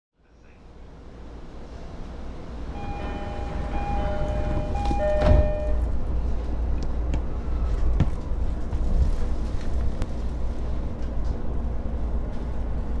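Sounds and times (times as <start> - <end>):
train low hum: 0.2 - 13.0
electronic chime melody: 2.8 - 5.8.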